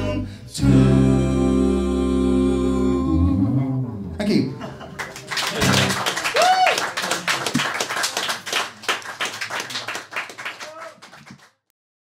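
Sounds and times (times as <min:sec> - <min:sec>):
audience clapping: 0:04.8 - 0:11.7.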